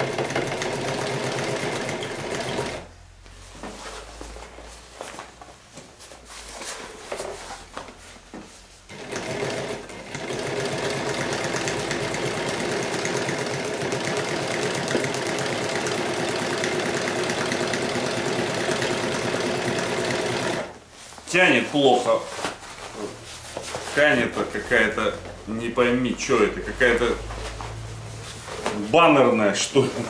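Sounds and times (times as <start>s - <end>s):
sewing machine stitching: 0.0s - 2.9s, 8.9s - 20.8s.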